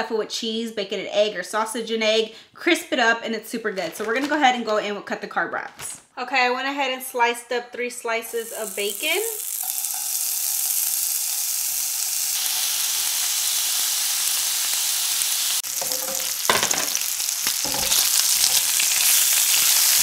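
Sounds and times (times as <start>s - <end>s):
bacon sizzling in frying pan: 8.3s - 20.0s
spatula scraping pan: 15.6s - 20.0s.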